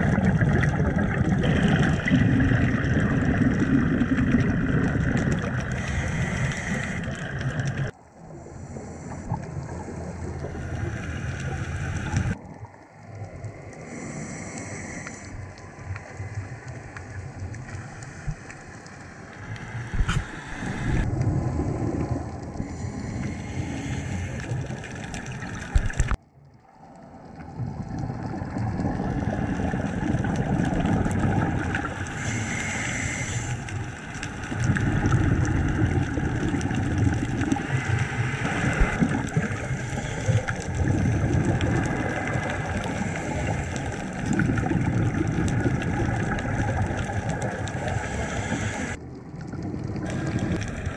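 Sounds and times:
regulator exhaust bubbling underwater: 0.0s - 8.5s, 27.5s - 32.4s, 34.3s - 50.9s.

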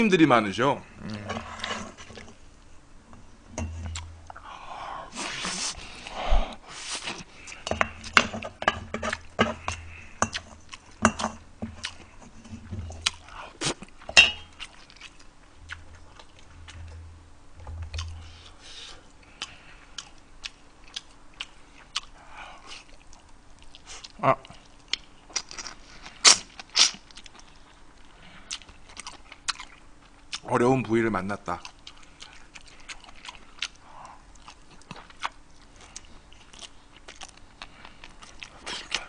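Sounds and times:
man chewing: 5.1s - 30.4s, 31.6s - 39.0s
utensils clinking on metal bowl: 14.1s - 14.6s.

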